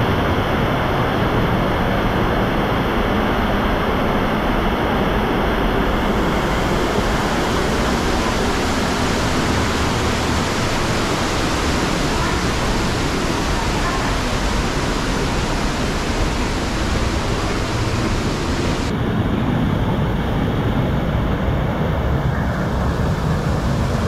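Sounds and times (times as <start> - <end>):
waterfall roaring: 0.0 - 18.9.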